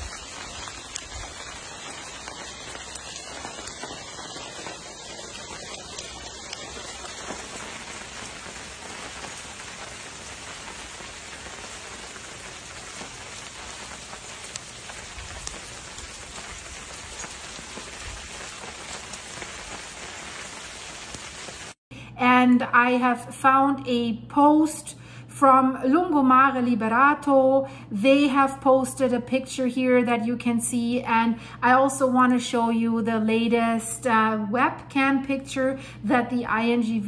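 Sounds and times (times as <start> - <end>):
falling rocks and ash hissing: 0.0 - 21.8.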